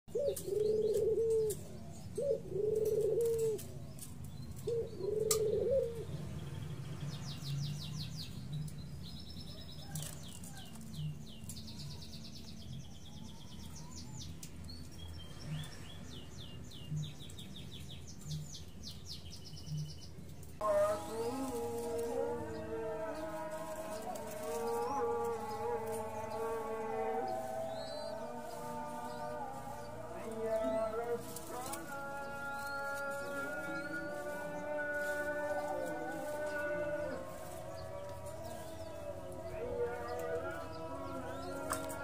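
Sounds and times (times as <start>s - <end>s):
dove cooing: 0.1s - 6.3s, 20.6s - 42.0s.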